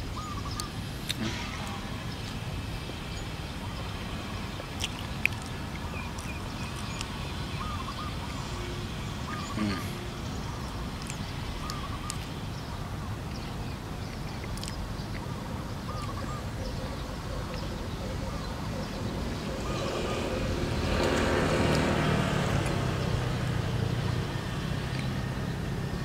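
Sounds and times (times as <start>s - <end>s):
mouth clicks chewing: 4.8s - 7.2s, 10.9s - 12.3s, 14.1s - 15.3s
bird wavy call: 15.9s - 20.6s.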